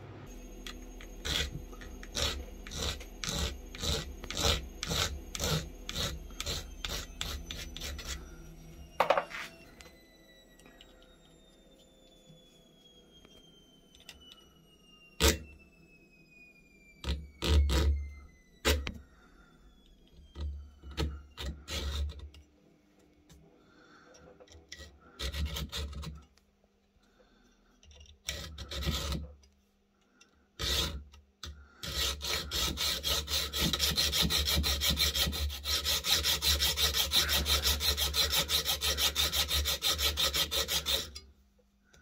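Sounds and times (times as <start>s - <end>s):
hacksaw cutting metal: 0.4s - 8.4s, 20.9s - 22.3s, 24.5s - 26.2s, 28.2s - 29.3s, 30.6s - 41.3s.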